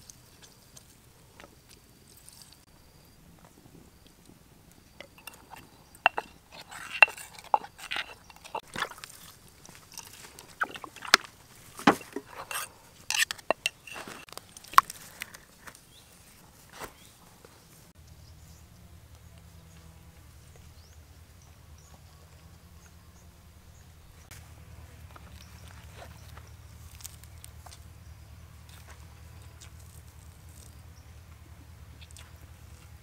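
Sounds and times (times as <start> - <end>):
pestle knocking and scraping stone: 5.0 - 14.9
faint low hum: 17.0 - 33.0.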